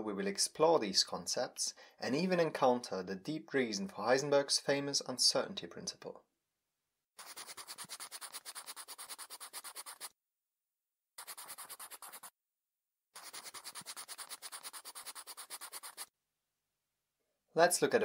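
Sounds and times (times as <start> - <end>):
pen scribbling on paper: 7.2 - 10.1, 11.2 - 12.3, 13.2 - 16.1.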